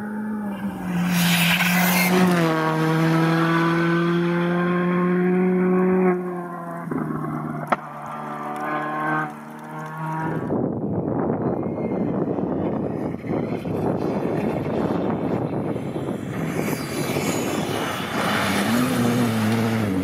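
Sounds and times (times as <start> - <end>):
rally car engine at high revs: 0.0 - 10.6, 12.4 - 20.0
tyre and road-spray rush: 0.6 - 2.4, 13.6 - 20.0.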